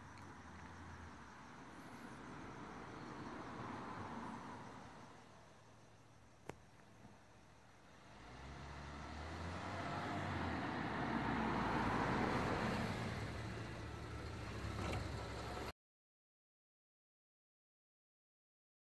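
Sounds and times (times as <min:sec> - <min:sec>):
vehicle passing on street: 0:00.0 - 0:06.1, 0:07.6 - 0:15.7.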